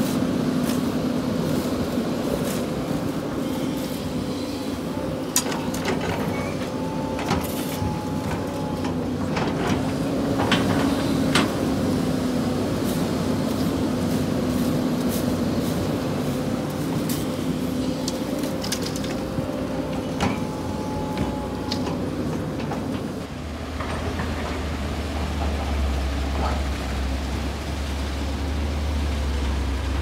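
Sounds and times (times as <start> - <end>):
shovels scraping sand in metal bed: 0.0 - 6.6, 12.7 - 19.4
diesel engine running: 0.0 - 30.0.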